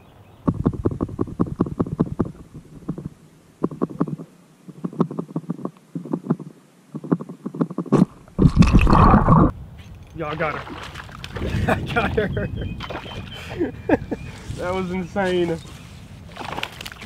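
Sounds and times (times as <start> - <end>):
underwater clicking and crackling: 7.0 - 9.5.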